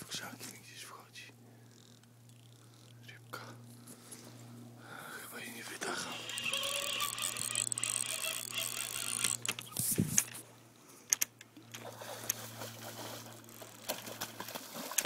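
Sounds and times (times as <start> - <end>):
rustling through tall grass: 12.0 - 15.0.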